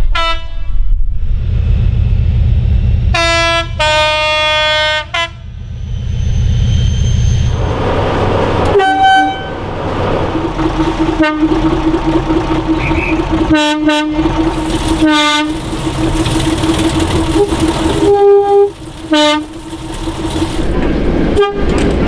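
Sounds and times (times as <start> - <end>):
locomotive horn toots: 0.0 - 0.6, 3.1 - 5.5, 8.7 - 9.7, 10.5 - 19.6, 21.3 - 21.8
diesel locomotive engine running: 0.0 - 22.0.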